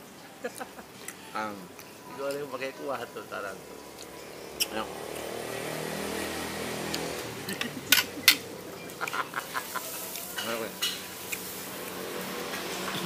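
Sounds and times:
food sizzling in a wok: 9.4s - 13.0s.

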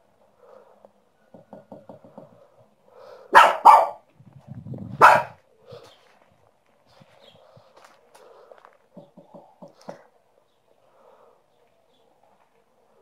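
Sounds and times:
small dog barking: 3.3s - 4.1s, 5.0s - 5.4s.

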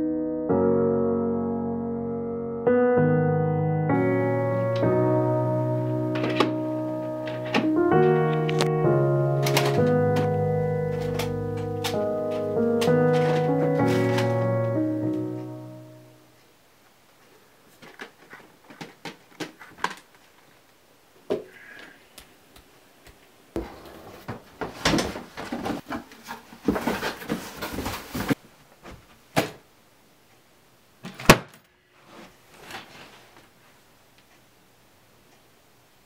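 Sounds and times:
rummaging through boxes: 9.3s - 15.4s, 17.7s - 20.3s, 23.6s - 29.0s
rustling and clatter: 10.9s - 14.8s, 17.7s - 20.6s, 23.6s - 29.2s.

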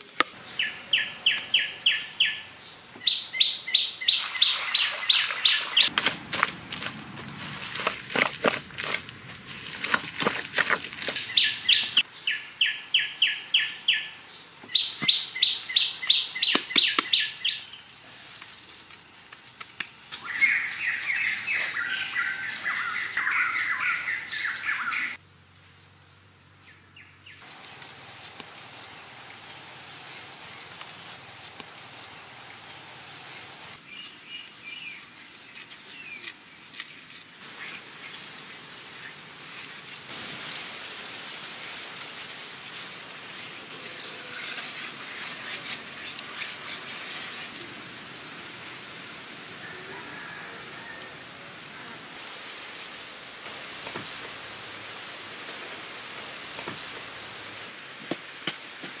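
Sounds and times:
high-pitched insect buzz: 0.0s - 54.6s
birds chirping: 0.4s - 7.8s, 8.6s - 17.8s, 20.2s - 25.2s
bird warbling song: 0.5s - 5.9s, 11.0s - 17.8s.

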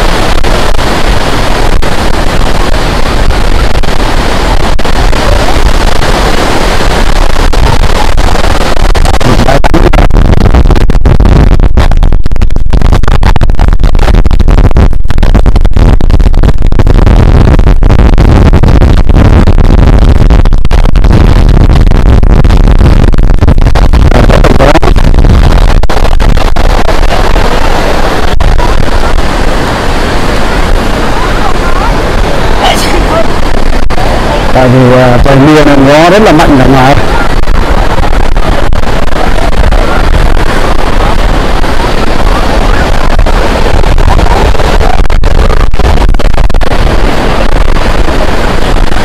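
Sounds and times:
strong wind buffeting microphone: 0.0s - 49.0s.

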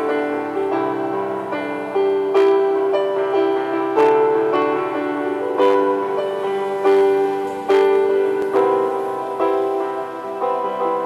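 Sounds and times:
electronic keyboard chords: 0.0s - 11.0s.

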